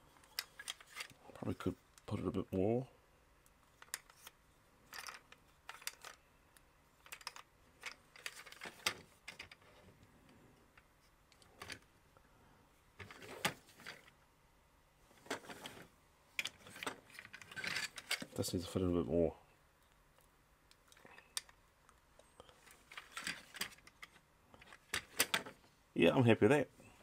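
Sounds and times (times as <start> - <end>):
plastic toy parts clicking: 0.2 - 1.2, 3.4 - 9.7, 16.4 - 18.3, 20.7 - 21.6, 22.7 - 25.6.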